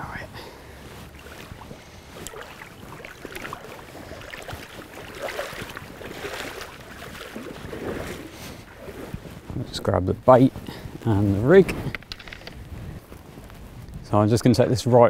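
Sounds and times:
water sloshing and splashing: 0:00.6 - 0:10.7.

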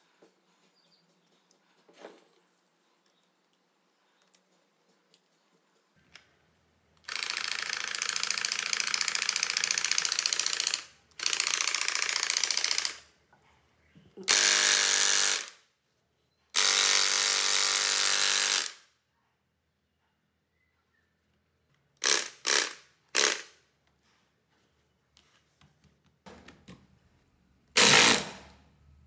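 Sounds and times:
electric jigsaw motor buzzing: 0:14.3 - 0:15.6, 0:16.6 - 0:18.8, 0:22.0 - 0:23.4, 0:27.8 - 0:28.6.

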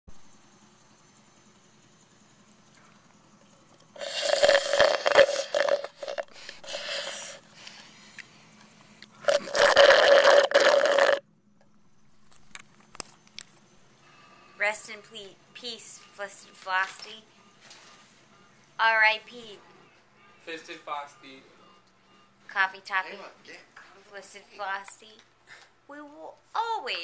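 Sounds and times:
slurping through a straw: 0:03.4 - 0:07.8, 0:09.2 - 0:11.2.

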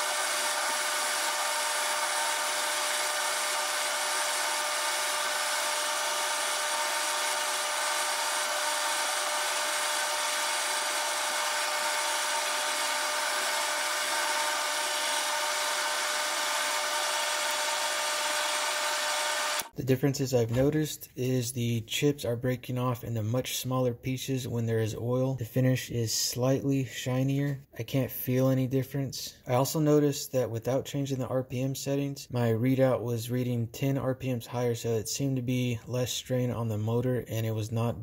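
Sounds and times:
lathe cutting hiss: 0:00.0 - 0:19.7
lathe drive tones: 0:00.0 - 0:19.7.

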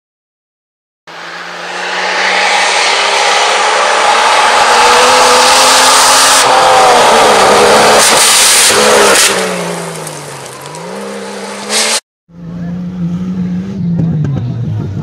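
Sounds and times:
rally car engines revving: 0:01.1 - 0:15.0
tyres hissing on gravel: 0:09.3 - 0:12.0.

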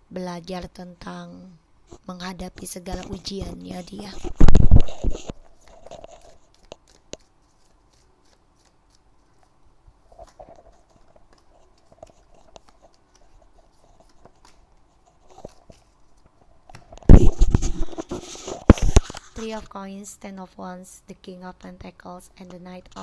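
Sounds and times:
cards tapping and sliding: 0:04.1 - 0:09.6, 0:10.2 - 0:19.3.

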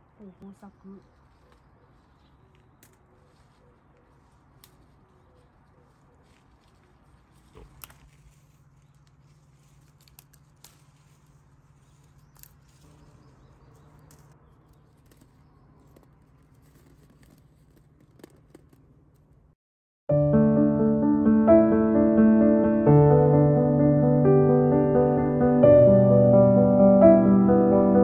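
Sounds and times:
soft clicks and rustles: 0:01.2 - 0:13.1, 0:13.7 - 0:19.5.

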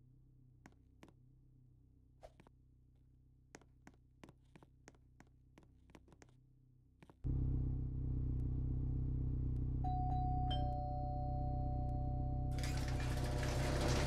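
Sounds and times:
loud low-pitched machine hum: 0:07.3 - 0:14.0
low hum: 0:07.3 - 0:14.0.

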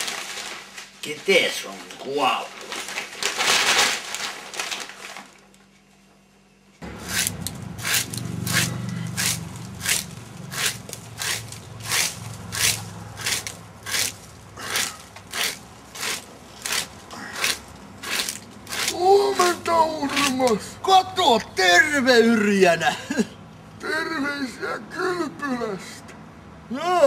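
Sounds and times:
newspaper pages rustling: 0:00.0 - 0:06.0
rake scraping over grass: 0:07.0 - 0:20.5.

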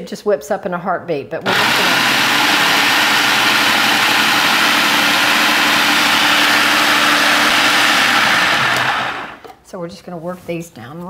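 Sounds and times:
food processor motor whirring: 0:01.4 - 0:09.5.

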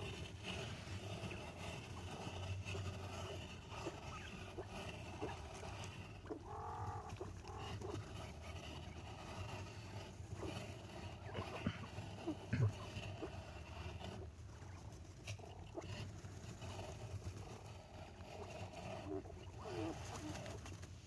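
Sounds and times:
quail peeping: 0:00.0 - 0:20.9
steady low hum: 0:00.0 - 0:21.0.

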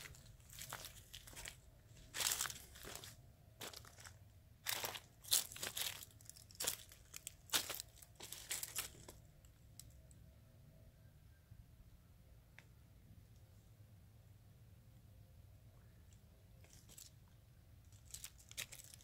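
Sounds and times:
footsteps on gravel and dry leaves: 0:00.0 - 0:09.2, 0:18.0 - 0:19.0.

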